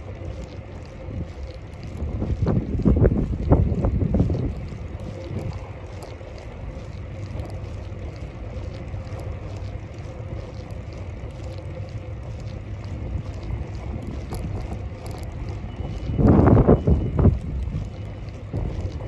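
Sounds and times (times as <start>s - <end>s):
faint ticks: 0.0s - 19.0s
low rumble of moving bicycle: 0.0s - 19.0s
wind rushing on microphone: 1.0s - 7.6s, 12.4s - 19.0s.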